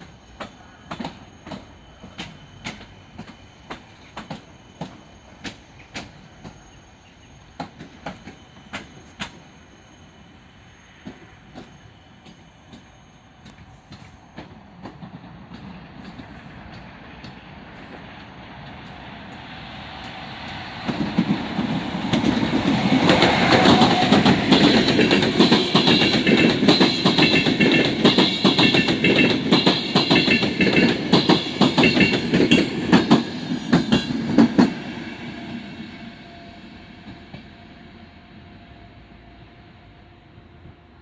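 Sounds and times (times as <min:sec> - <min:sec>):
train passing at speed: 0:00.0 - 0:41.0.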